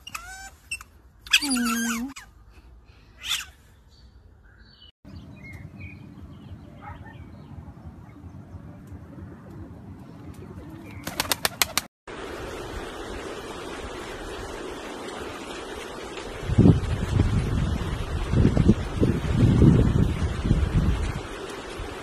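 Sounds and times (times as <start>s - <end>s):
low outdoor rumble: 0.5s - 11.1s
pigeon wings clapping: 10.9s - 11.9s.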